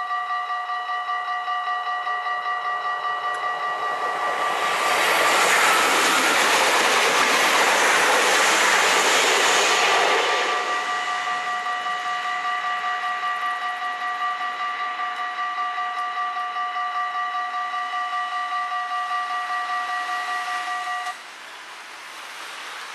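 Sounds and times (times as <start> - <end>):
level crossing bell ringing: 0.0 - 4.8.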